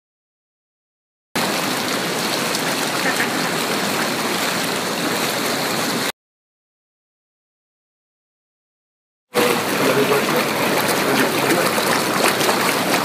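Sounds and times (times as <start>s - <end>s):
hot tub jets bubbling: 1.4s - 6.1s, 9.4s - 13.0s.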